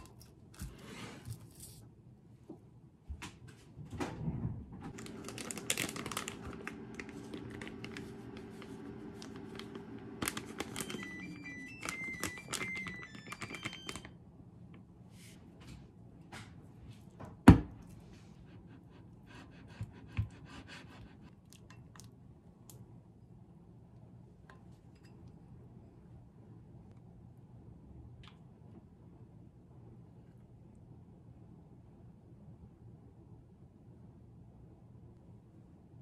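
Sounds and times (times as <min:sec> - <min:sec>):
microwave oven humming: 0:04.8 - 0:14.8
plastic bag rustling: 0:04.9 - 0:11.2
electronic beeps: 0:10.8 - 0:14.1.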